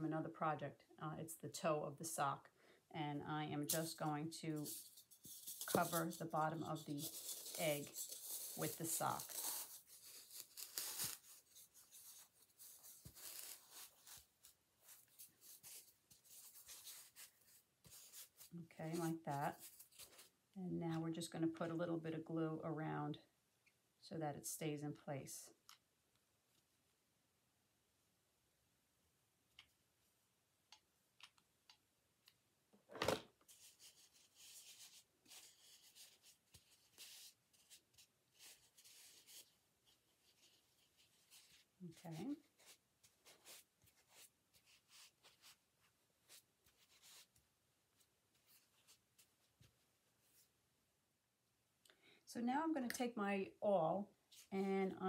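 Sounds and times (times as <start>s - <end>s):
sock rustling and rubbing: 4.6s - 20.4s, 33.4s - 47.4s.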